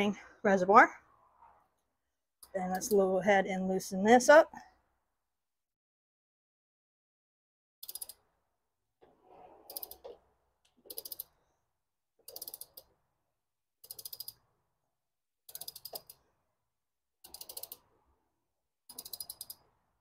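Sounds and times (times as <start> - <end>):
ratchet wrench clicking: 7.8 - 8.2, 10.9 - 11.3, 12.3 - 12.9, 13.8 - 14.4, 15.5 - 16.2, 17.2 - 17.8, 18.9 - 19.6.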